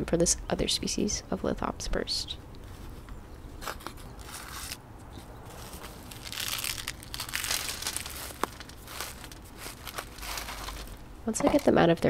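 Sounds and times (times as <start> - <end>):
gritty soil crunching: 2.6 - 12.0
plastic pot crinkling: 2.7 - 12.0.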